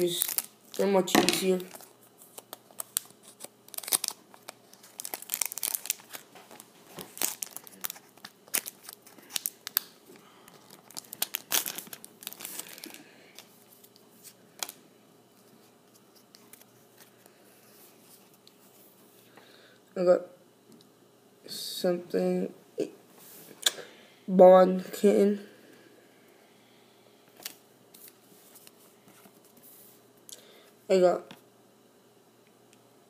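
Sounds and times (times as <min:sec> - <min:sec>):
foil wrapper crinkling and tearing: 0:00.0 - 0:14.8.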